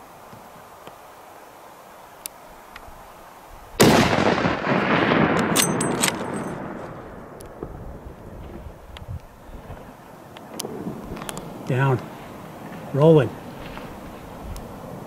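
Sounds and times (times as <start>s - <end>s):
rifle shot: 3.8s - 7.8s
rolling echo: 3.8s - 14.2s.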